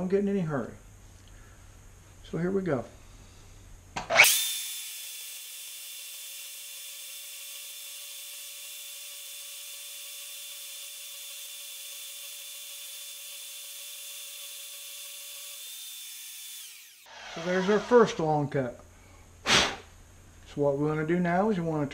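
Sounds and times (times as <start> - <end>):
band saw cutting steel: 4.0 - 18.3.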